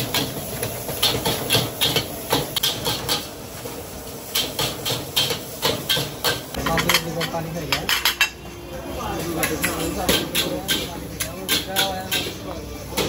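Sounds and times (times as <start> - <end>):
food sizzling: 0.0 - 13.0
metal spatula clanking on wok: 4.3 - 8.5, 9.3 - 13.0.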